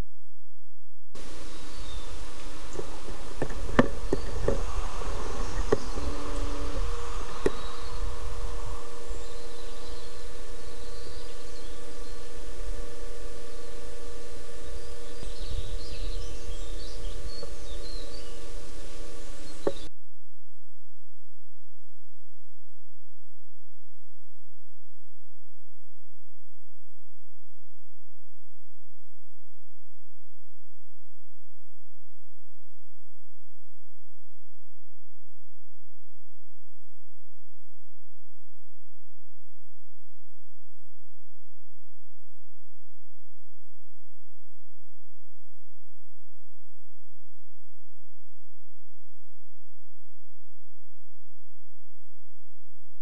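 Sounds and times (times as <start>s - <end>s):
constant hum: 0.0s - 53.0s
steady low rumble: 0.0s - 53.0s
faint hiss: 1.2s - 19.9s
small birds chirping: 1.2s - 19.9s.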